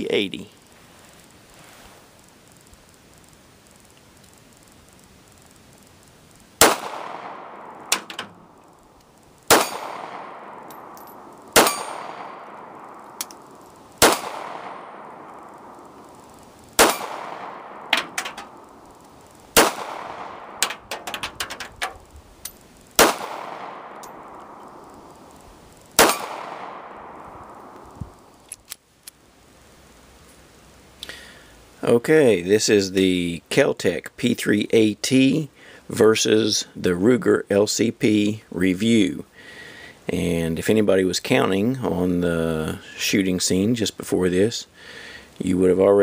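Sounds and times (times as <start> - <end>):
pistol shots with echo: 6.6 - 8.6, 9.5 - 16.2, 16.8 - 18.8, 19.6 - 21.6, 23.0 - 25.4, 26.0 - 28.2
metallic clinks and taps: 10.6 - 12.0, 17.9 - 18.5, 20.6 - 22.7, 24.0 - 24.7.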